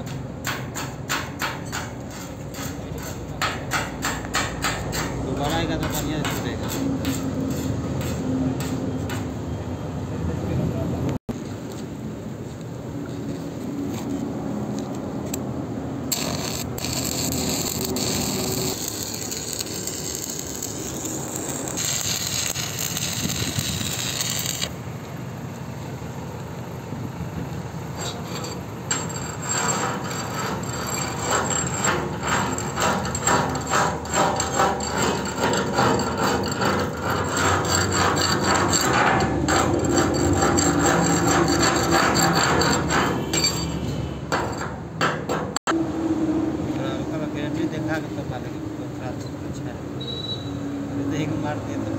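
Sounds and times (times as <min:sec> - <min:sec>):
welding arc hissing and crackling: 0:16.0 - 0:24.8.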